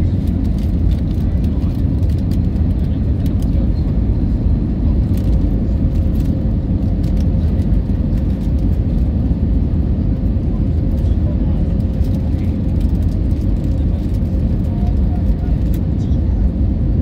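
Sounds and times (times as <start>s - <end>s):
jet airliner cabin rumble: 0.0s - 17.0s.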